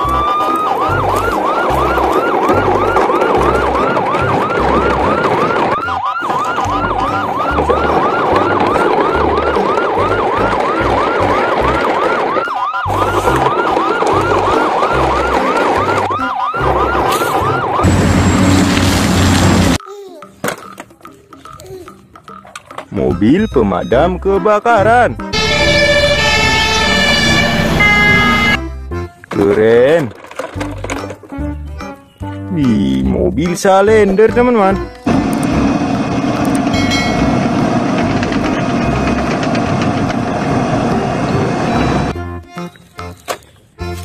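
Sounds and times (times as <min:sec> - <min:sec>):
electronic yelp siren: 0:00.0 - 0:18.3, 0:25.3 - 0:28.6
loud noisy sound: 0:25.4 - 0:28.6, 0:35.1 - 0:42.1.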